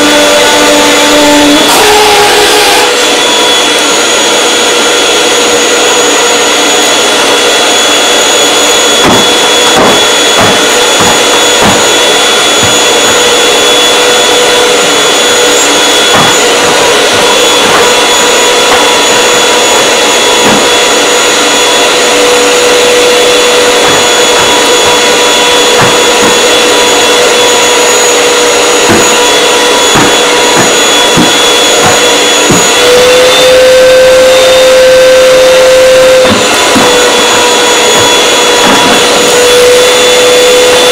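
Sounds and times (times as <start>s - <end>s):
vacuum cleaner whining: 0.0s - 40.9s
vacuum nozzle knocking: 8.8s - 40.9s.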